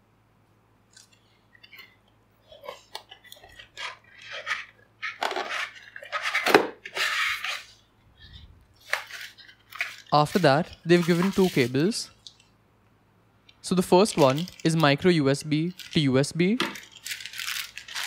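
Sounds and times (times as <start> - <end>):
plastic packaging rustling: 2.5 - 12.5, 13.6 - 18.0.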